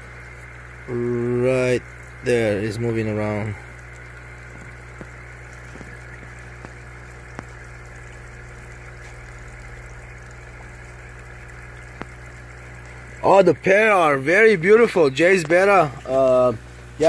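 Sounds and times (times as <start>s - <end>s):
aquarium filter humming: 0.0s - 17.0s
faint water hiss: 0.0s - 17.0s
soft ticks: 5.8s - 7.6s, 11.8s - 12.2s.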